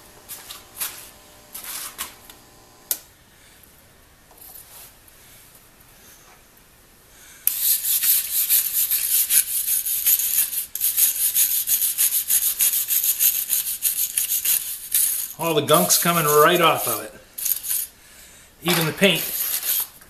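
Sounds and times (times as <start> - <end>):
brush scraping metal: 8.0 - 17.9, 18.6 - 20.0.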